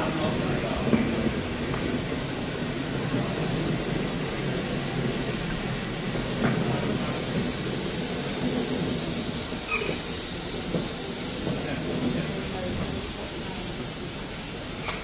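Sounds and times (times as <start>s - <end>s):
steam locomotive hissing: 0.0s - 15.0s.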